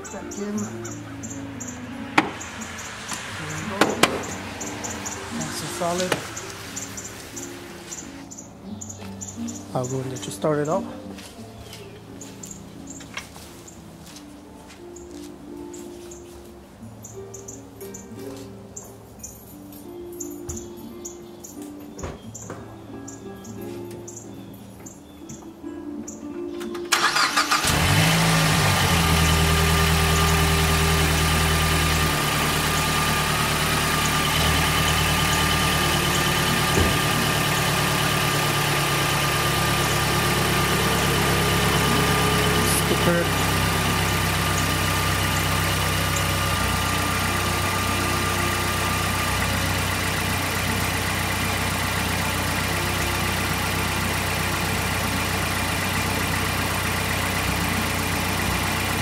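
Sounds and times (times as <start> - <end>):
car engine idling: 0.0 - 10.2, 26.9 - 59.0.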